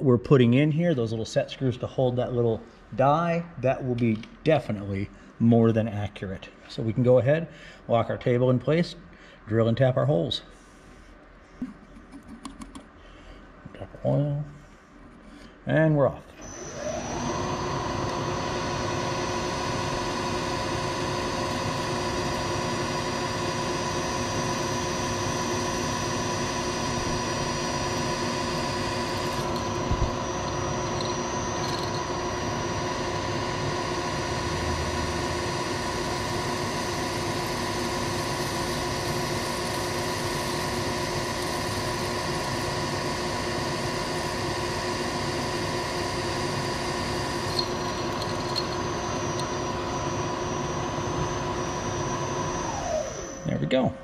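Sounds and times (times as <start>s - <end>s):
milling machine spindle whine: 16.4s - 53.6s.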